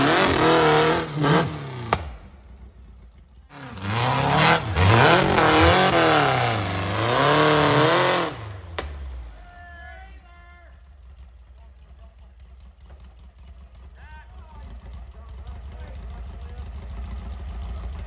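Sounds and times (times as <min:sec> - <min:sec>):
buggy engine revving: 0:00.0 - 0:09.6, 0:10.7 - 0:18.0
sharp crack: 0:01.8 - 0:02.4, 0:08.7 - 0:09.3.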